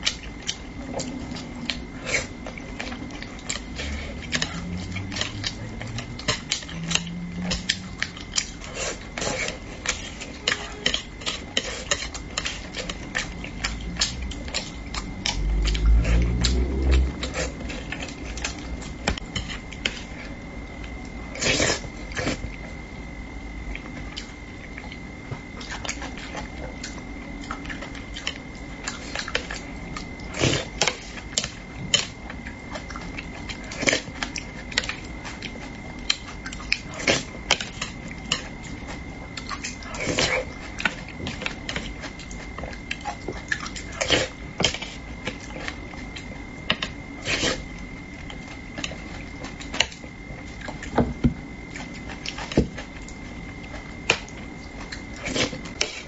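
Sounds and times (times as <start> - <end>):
faint high-pitched tone: 10.2 - 11.0
chewing and mouth smacks: 11.2 - 20.2, 23.7 - 51.0.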